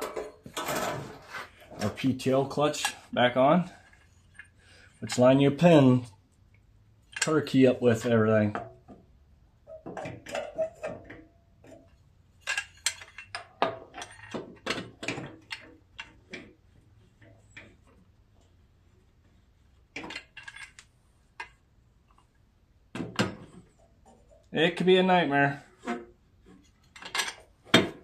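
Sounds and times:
metal clicking and clinking: 9.7s - 16.4s.

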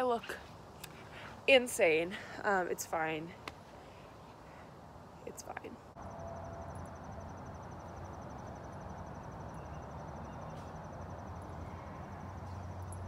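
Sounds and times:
insect chirping: 5.9s - 13.0s.

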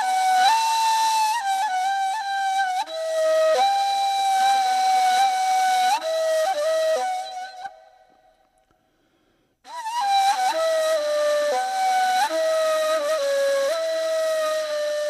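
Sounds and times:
solo flute melody: 0.0s - 8.4s, 9.7s - 15.0s.

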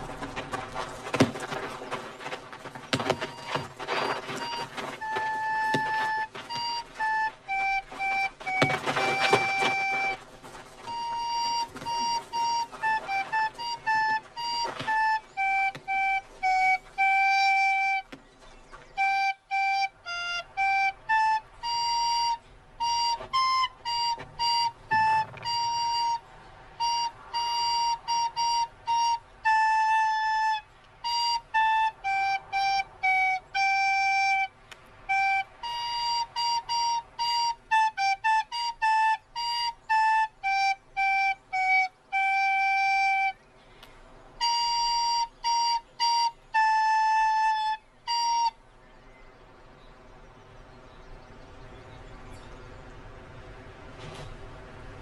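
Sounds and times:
recorder melody: 1.1s - 18.2s, 18.9s - 26.2s, 26.8s - 43.4s, 44.4s - 48.6s.

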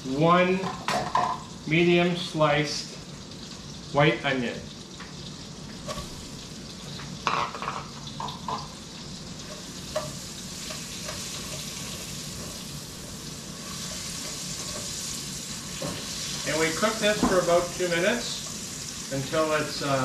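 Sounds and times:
onion sizzling in a pan: 0.0s - 20.0s
stirring knocks against pan: 9.5s - 11.8s, 17.1s - 17.6s.

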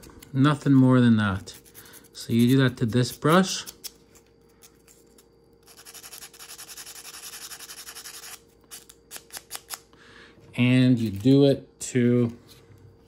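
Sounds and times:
sandpaper scratching: 5.7s - 8.4s.

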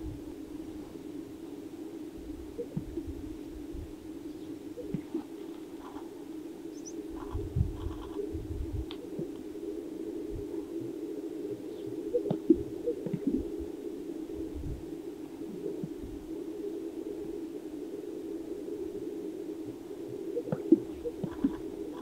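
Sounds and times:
low background hum: 0.0s - 22.0s
sage-grouse bubbling pops: 2.6s - 3.0s, 12.2s - 13.4s, 20.4s - 22.0s.

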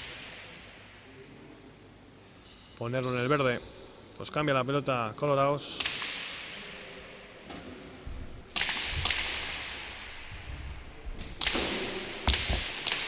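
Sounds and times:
ball smacks echoing off walls: 5.7s - 13.0s.

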